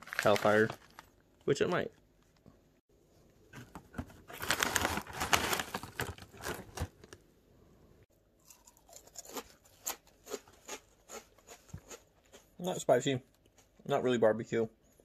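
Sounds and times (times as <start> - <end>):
plastic packet crinkling: 0.0 - 1.2, 4.3 - 7.2
crunchy snack being eaten: 8.4 - 12.5.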